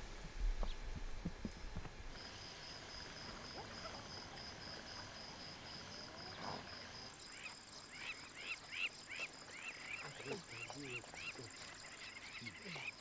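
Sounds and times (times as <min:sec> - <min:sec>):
insect chirping: 0:00.4 - 0:13.0
bird calling: 0:03.0 - 0:05.2, 0:06.1 - 0:13.0.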